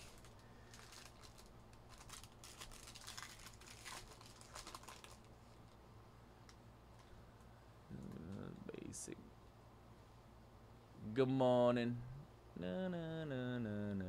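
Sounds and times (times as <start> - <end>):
foil wrapper crinkling and tearing: 0.0 - 5.7.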